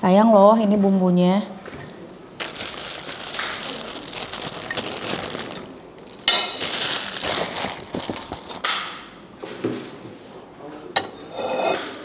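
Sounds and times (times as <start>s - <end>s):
paper wrapper crinkling: 2.4s - 8.8s.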